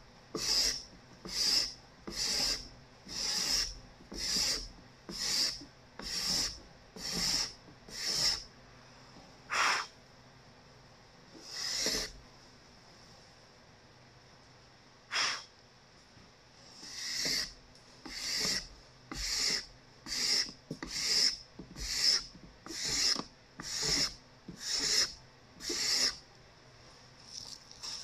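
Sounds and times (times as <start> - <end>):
card scraper scraping wood: 0.4 - 8.4, 11.4 - 12.2, 16.8 - 17.5, 18.1 - 26.2.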